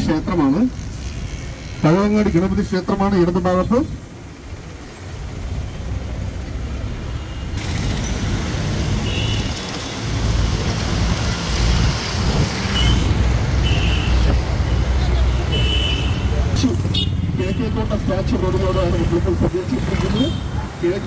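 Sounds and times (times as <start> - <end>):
bus engine rumble: 0.0 - 21.0
wind: 0.0 - 21.0
traffic horn beeps: 7.1 - 7.6, 9.0 - 9.7, 12.7 - 14.3, 15.2 - 17.6.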